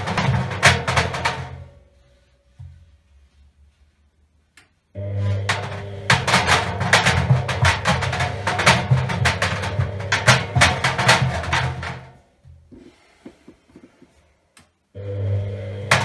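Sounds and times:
washing machine hum: 0.0 - 3.8, 4.9 - 14.2, 14.9 - 16.0.

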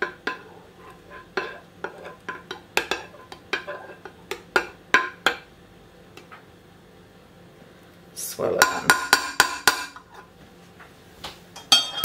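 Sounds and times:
knife clinking against glass dish: 11.6 - 12.0.

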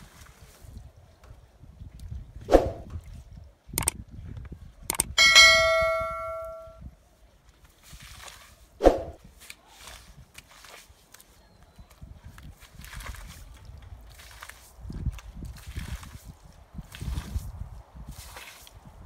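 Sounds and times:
sharp clicks: 4.9 - 5.2
bell-like notification ding: 5.2 - 6.8
push broom scrubbing wet rug: 7.8 - 11.3, 15.5 - 18.8.

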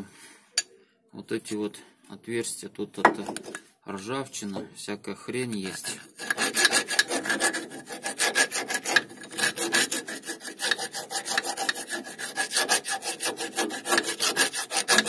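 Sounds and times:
round file rasping in metal: 5.6 - 15.0.

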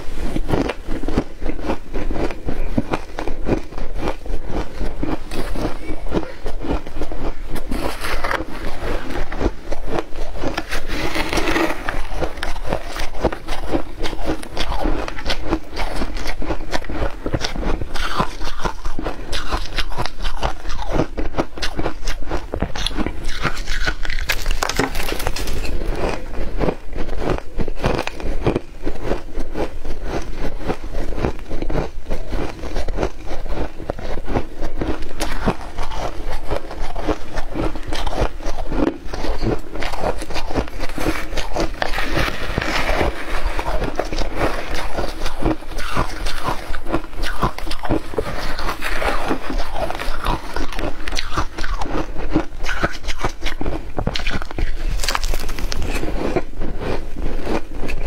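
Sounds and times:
shaved ice crunching chewed: 0.0 - 58.0
metal spoon scraping bowl: 7.6 - 16.2.

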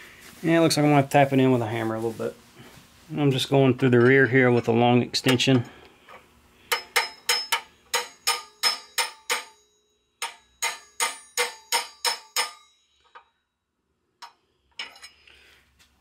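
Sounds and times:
hammer striking steel bar: 6.7 - 13.3.

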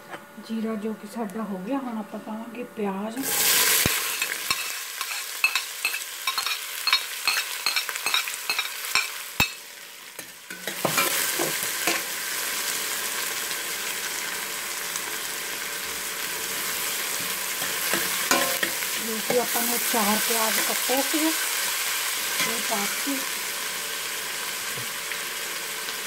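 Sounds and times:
onions sizzling in oil: 3.2 - 26.0
spatula scraping a pot: 4.0 - 9.1.

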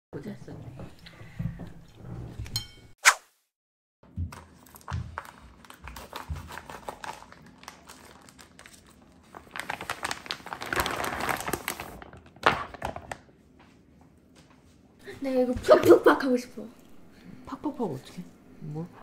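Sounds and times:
plastic film crinkling and crackling: 4.4 - 13.3.

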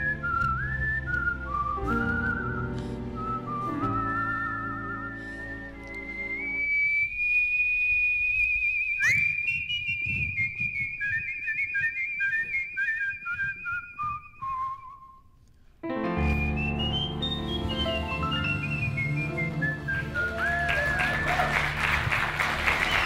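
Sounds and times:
backing music: 0.0 - 6.6, 15.8 - 23.0
people whistling in duet: 0.0 - 15.4, 16.1 - 23.0.

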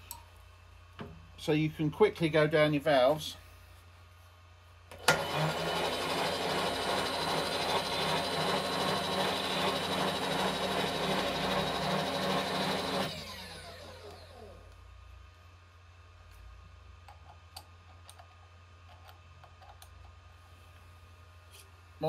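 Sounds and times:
milling machine spindle running: 5.0 - 14.6.

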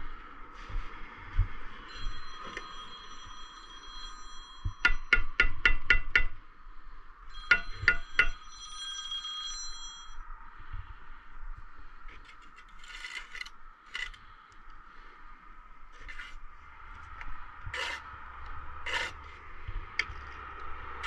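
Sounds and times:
trowel tapping brick: 4.8 - 6.3, 7.5 - 8.4, 12.8 - 14.2, 17.7 - 18.0, 18.9 - 19.2
trowel scraping brick and mortar: 12.2 - 14.2, 16.0 - 16.4, 17.6 - 18.1, 18.8 - 19.4.

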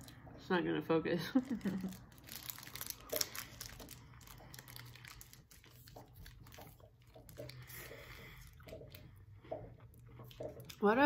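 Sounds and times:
wrapper crinkling: 1.3 - 8.6
quiet chewing: 1.5 - 10.8.

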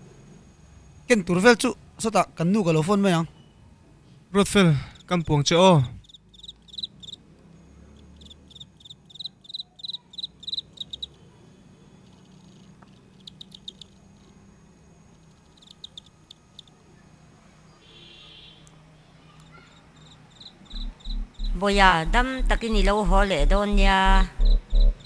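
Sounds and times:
faint low hum: 0.0 - 18.0, 18.6 - 25.0
insect chirping in rapid pulses: 4.8 - 5.2, 5.9 - 18.5, 19.7 - 25.0.

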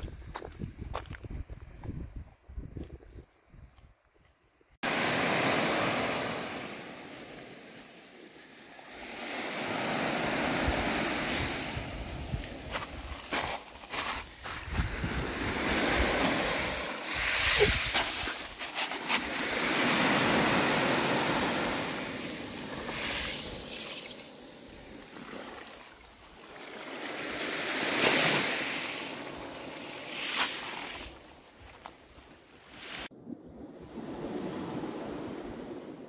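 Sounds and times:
waves washing on pebble beach: 4.8 - 31.5.

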